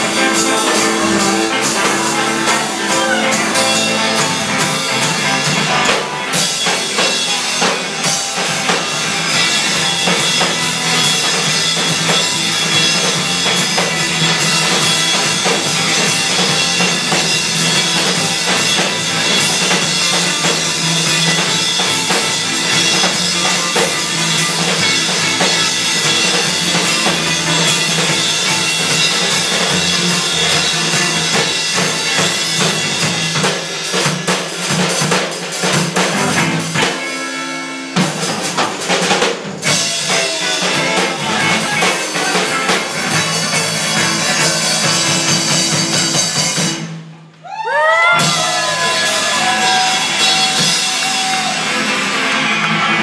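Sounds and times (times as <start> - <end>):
swooping sliding guitar notes: 0.0 - 6.4
heavy drums: 0.0 - 53.0
live rock band playing: 0.0 - 53.0.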